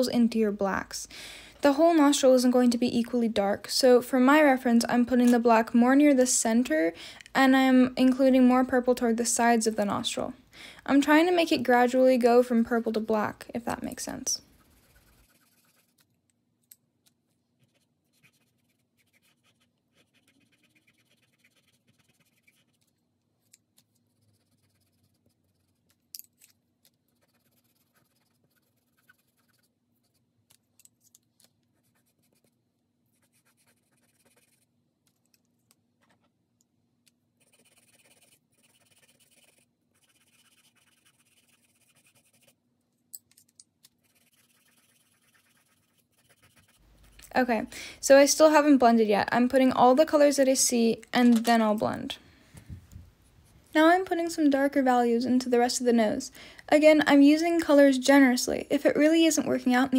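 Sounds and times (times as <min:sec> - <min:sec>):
pencil scratching on paper: 0:14.4 - 0:16.1, 0:17.6 - 0:26.0, 0:26.9 - 0:30.6, 0:31.6 - 0:34.7, 0:37.4 - 0:42.6, 0:44.0 - 0:47.3.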